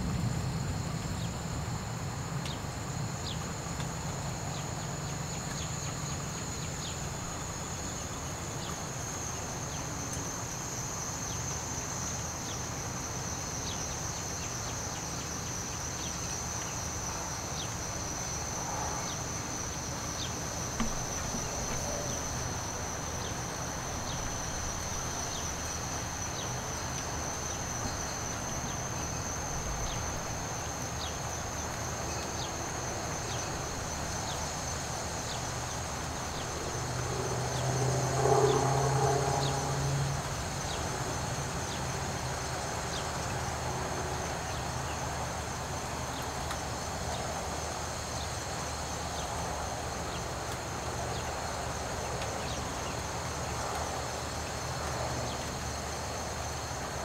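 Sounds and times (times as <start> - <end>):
low wind rumble: 0.0 - 11.0, 17.1 - 41.4
insect chirps: 0.0 - 57.0
insects trilling: 0.0 - 57.0
light rain hiss: 0.0 - 57.0.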